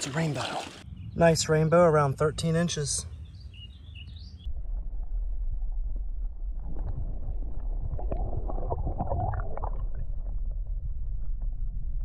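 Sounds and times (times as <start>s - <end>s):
water gurgling: 0.0s - 0.8s, 6.4s - 11.3s
underwater creek current rumble: 0.0s - 1.3s, 4.5s - 12.0s.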